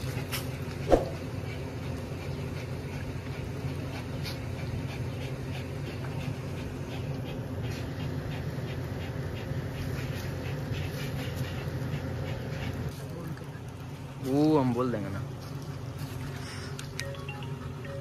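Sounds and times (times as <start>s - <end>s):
dog panting: 0.0s - 14.1s
steady low hum: 0.0s - 18.0s.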